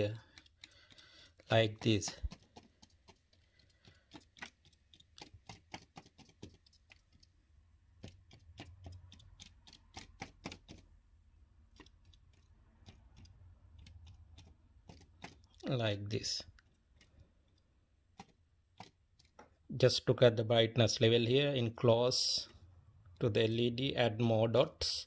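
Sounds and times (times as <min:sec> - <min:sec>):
marker tip tapping: 0:00.0 - 0:11.0.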